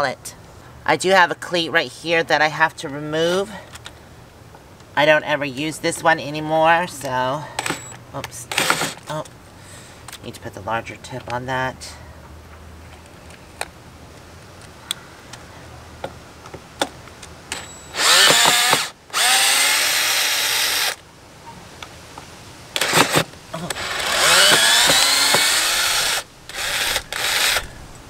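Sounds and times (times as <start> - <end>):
cordless drill whining: 7.6 - 9.0, 17.5 - 21.0, 22.8 - 27.8.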